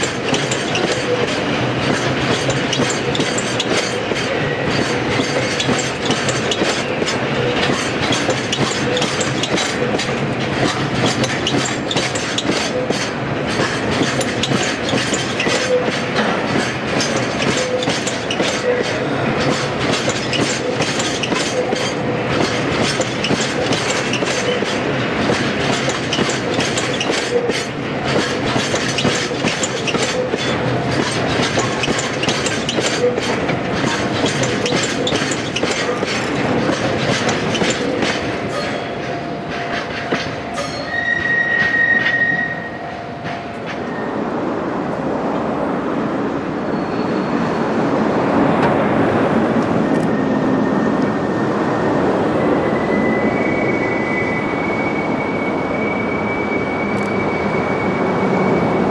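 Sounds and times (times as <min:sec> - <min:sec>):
train wheels clicking over rail joints: 0:00.0 - 0:42.5.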